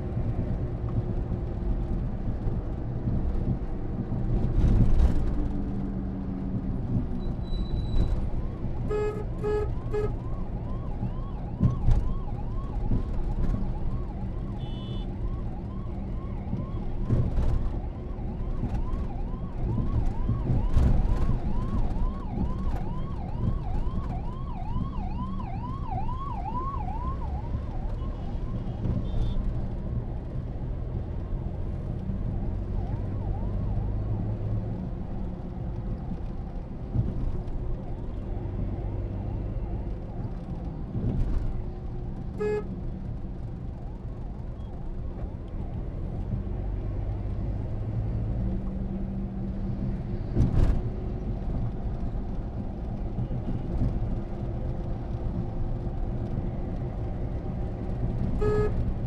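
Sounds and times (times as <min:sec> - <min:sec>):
engine and road rumble: 0:00.0 - 0:59.0
ambulance siren yelping: 0:08.2 - 0:28.8
short horn beep: 0:58.4 - 0:58.8.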